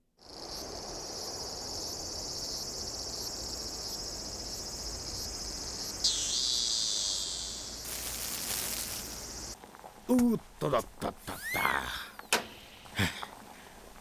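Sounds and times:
high-pitched insect chorus: 0.2 - 9.6
insect call with falling sweep: 0.2 - 9.6.

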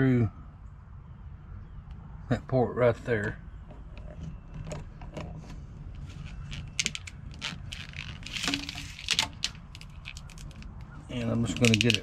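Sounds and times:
plastic wire wrap clicking and rustling: 6.2 - 12.0.

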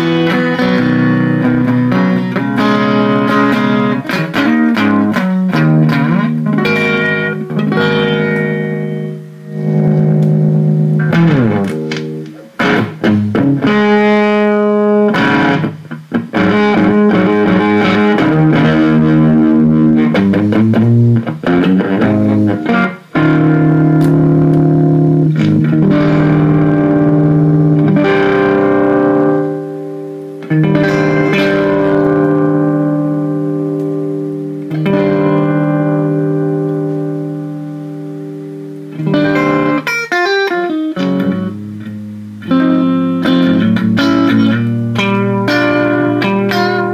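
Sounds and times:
electric guitar chords and runs: 0.0 - 46.9.

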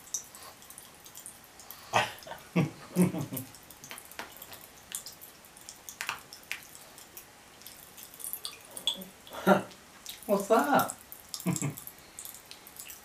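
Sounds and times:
popping candy crackling: 3.4 - 9.0.

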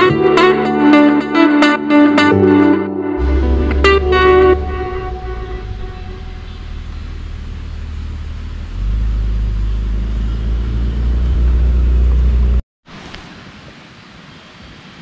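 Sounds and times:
deep low rumble: 3.2 - 12.6.

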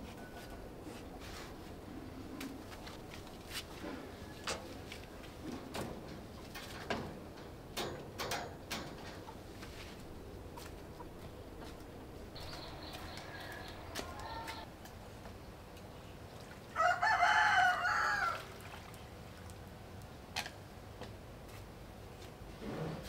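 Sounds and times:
rooster crowing: 12.5 - 14.7, 16.8 - 18.5.

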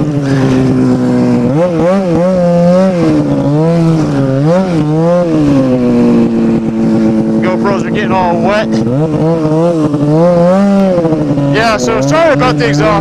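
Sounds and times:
snowmobile engine revving: 0.0 - 13.0
person speaking: 7.4 - 8.9.

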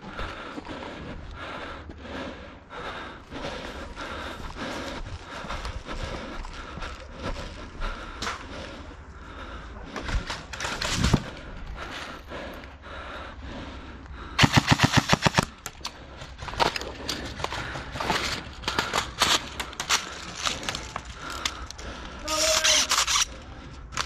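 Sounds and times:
airsoft gun full-auto burst: 14.4 - 15.6.

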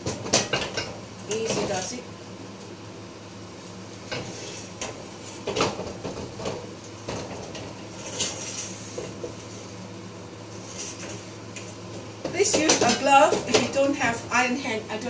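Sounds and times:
wok knocking and scraping on grate: 0.0 - 2.0, 4.1 - 9.8, 10.6 - 14.2
range hood fan humming: 0.0 - 15.0.

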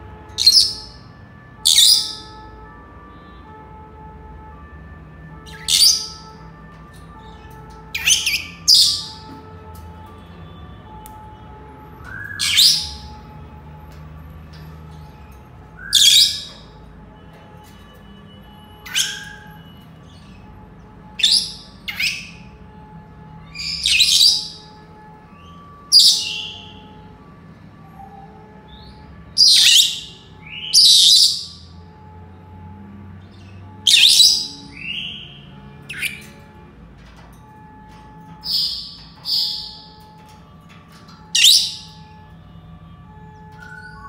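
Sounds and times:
parrots high-pitched calls: 0.4 - 1.0, 1.6 - 2.4, 5.4 - 6.4, 7.2 - 9.3, 12.3 - 13.2, 15.8 - 16.7, 18.8 - 20.4, 21.2 - 22.5, 23.5 - 24.7, 25.9 - 26.8, 28.8 - 31.6, 33.3 - 35.2, 35.9 - 36.4, 38.4 - 40.0, 41.0 - 42.1.

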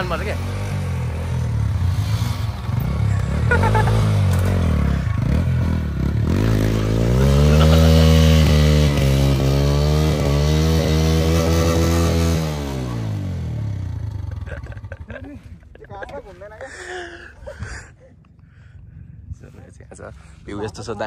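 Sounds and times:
motorcycle engine revving: 0.0 - 15.5.

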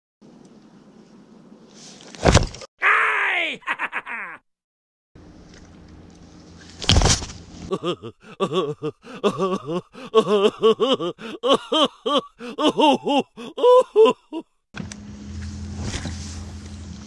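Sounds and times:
laugh-like cries: 2.8 - 4.4, 7.7 - 14.5
low boat hum: 5.2 - 7.7, 14.8 - 17.0.

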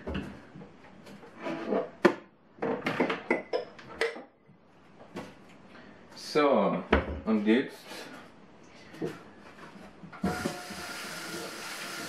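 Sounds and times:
dishes clinking on wooden shelves: 1.4 - 4.3.

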